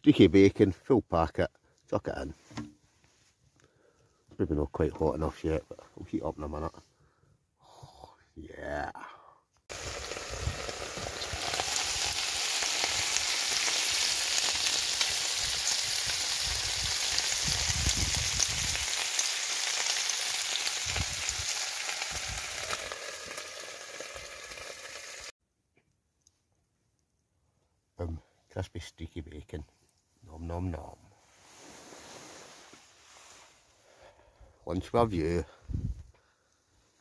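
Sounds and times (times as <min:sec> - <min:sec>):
bacon sizzling and popping: 0:09.7 - 0:25.3.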